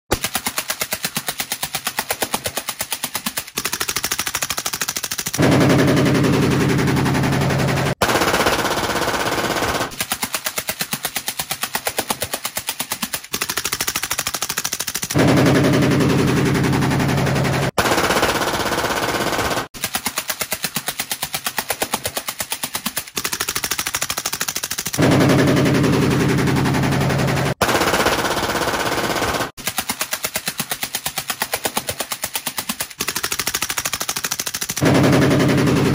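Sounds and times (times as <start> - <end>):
suppressed rifles firing bursts: 0.2 - 35.9
loud rifle automatic fire: 3.6 - 10.0, 13.4 - 19.8, 23.2 - 29.6, 33.0 - 35.9.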